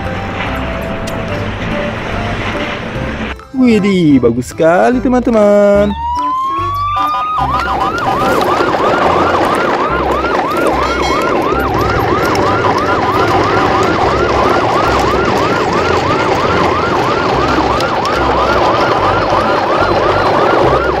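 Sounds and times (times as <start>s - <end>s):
siren yelping: 5.4s - 21.0s.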